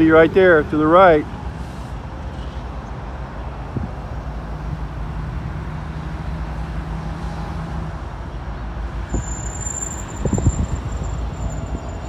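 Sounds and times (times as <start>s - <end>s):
diesel locomotive engine drone: 0.0s - 12.0s
wind rumble on microphone: 3.6s - 5.8s, 10.0s - 12.0s.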